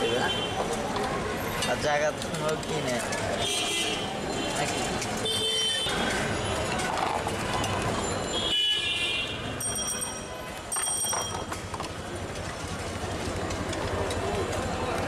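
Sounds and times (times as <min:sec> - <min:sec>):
traffic running: 0:00.0 - 0:15.0
car horn: 0:05.2 - 0:06.0, 0:08.4 - 0:09.4.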